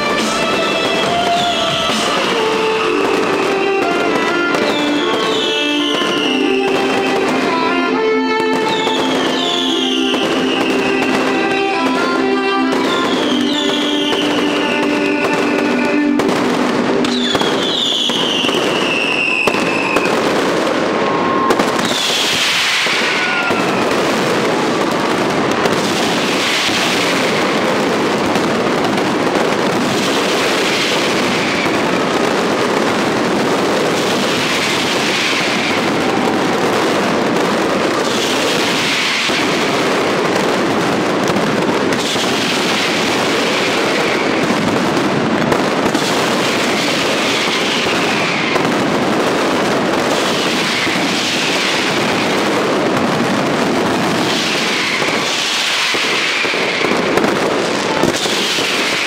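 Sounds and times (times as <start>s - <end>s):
firework whistle: 0.0s - 59.0s
fireworks crackling and popping: 0.0s - 59.0s
falling hiss: 21.9s - 23.8s.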